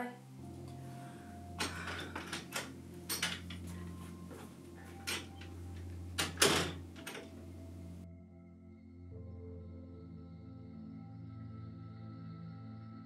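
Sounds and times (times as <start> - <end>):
low hum: 0.2 - 8.2
door latch clicks and knocks: 1.6 - 3.8, 5.0 - 7.5.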